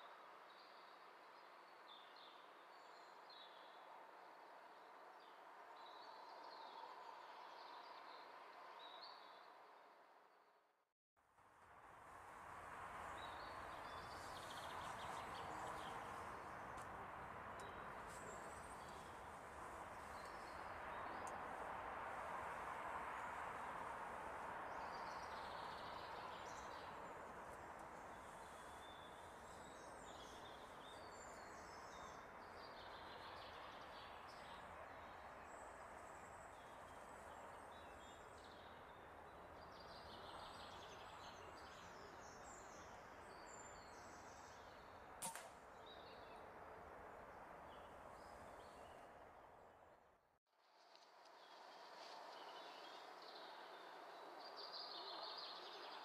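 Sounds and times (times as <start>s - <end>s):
woodland birdsong: 0.5s - 9.6s, 13.0s - 49.2s, 51.3s - 56.0s
air rifle shot: 45.2s - 45.6s.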